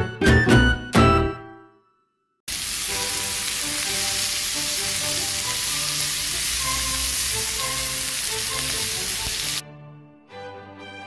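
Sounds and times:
pork sizzling on a griddle: 2.5 - 9.6.

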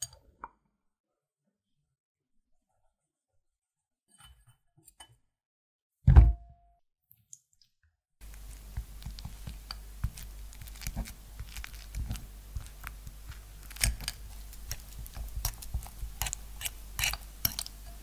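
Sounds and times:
fork mashing banana: 8.2 - 18.0.

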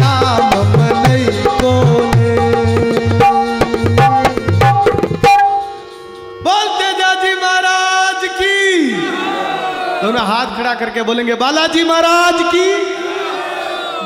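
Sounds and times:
hand drum with pitch-bending strokes: 0.0 - 5.7
harmonium: 0.0 - 13.5.

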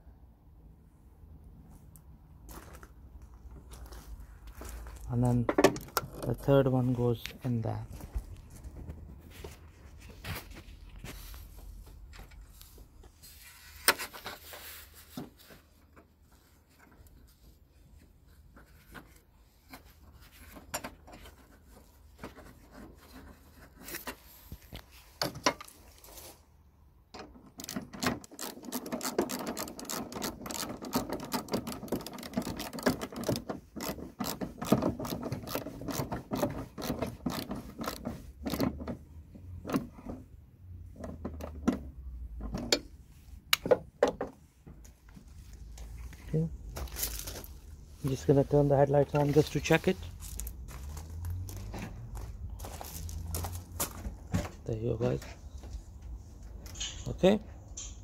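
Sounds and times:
tool handling clicks and taps: 56.0 - 58.0.

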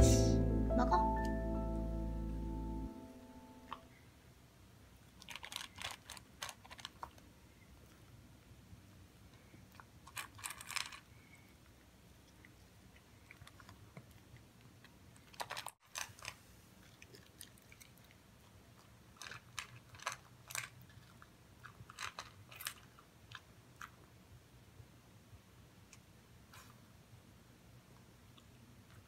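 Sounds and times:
dog crunching dry kibble: 5.2 - 7.3, 9.7 - 11.2, 13.2 - 24.1.

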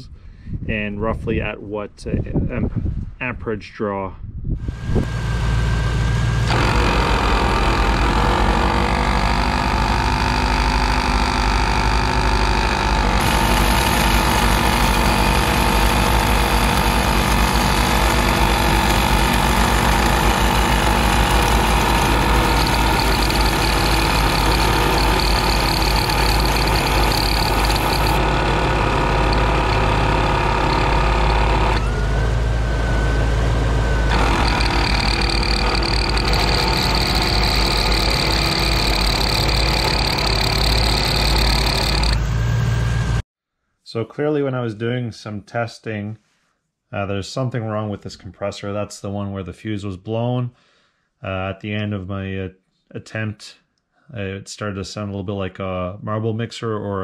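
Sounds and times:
air compressor droning: 4.6 - 43.2.

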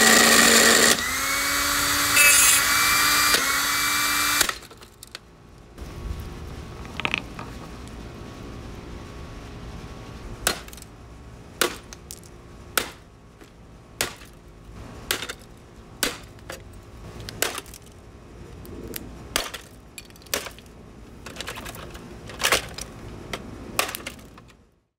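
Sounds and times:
blender motor humming: 0.0 - 4.5.

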